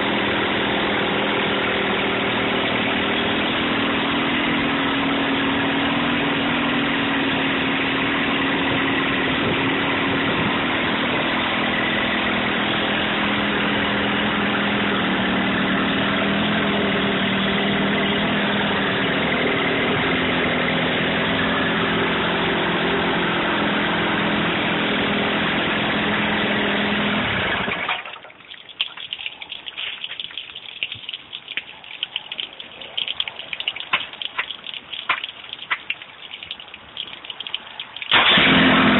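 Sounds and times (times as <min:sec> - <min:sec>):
water dripping and splashing: 0:27.6 - 0:38.5
outboard motor running: 0:37.7 - 0:38.9.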